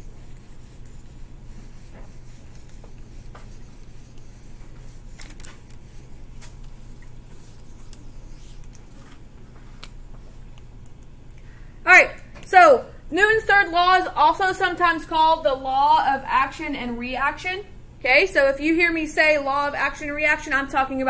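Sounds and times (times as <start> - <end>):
eraser wiping a whiteboard: 0.0 - 10.4.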